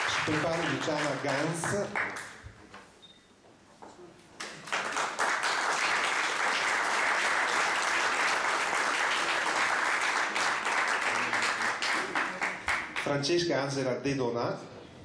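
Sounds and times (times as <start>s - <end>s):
audience applauding: 0.0s - 2.4s, 4.4s - 13.2s.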